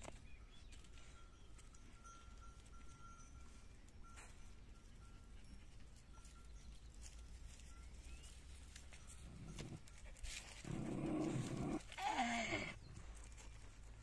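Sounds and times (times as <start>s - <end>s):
dog growling: 10.6s - 12.8s
dog whining: 10.6s - 12.8s.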